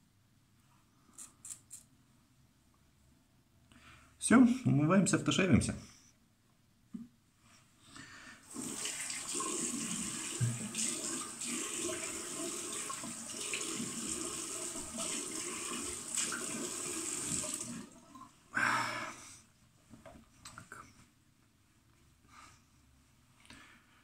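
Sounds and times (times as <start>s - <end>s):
tap running into a sink: 8.6s - 17.7s.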